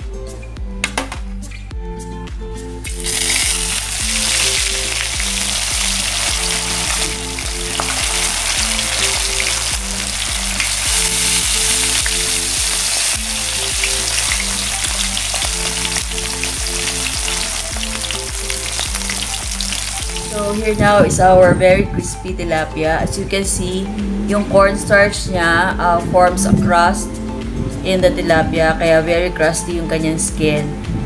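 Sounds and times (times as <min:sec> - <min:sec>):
background music: 0:00.0 - 0:31.0
fish sizzling in hot oil: 0:02.8 - 0:20.6.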